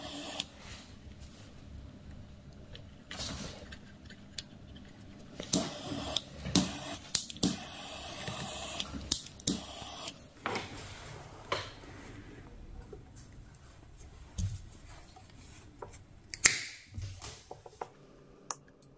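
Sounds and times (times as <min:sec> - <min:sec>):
sharp clicks and snaps: 0:03.7 - 0:07.6, 0:08.8 - 0:10.2, 0:16.3 - 0:16.8.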